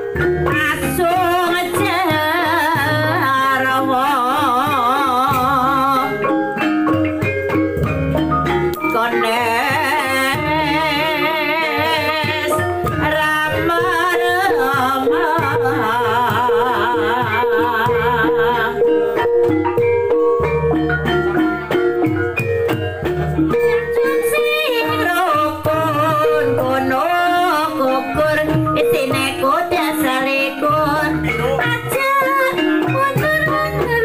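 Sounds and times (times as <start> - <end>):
drum strokes: 0.0 - 34.0
person singing with vibrato: 8.9 - 19.1, 23.6 - 34.0.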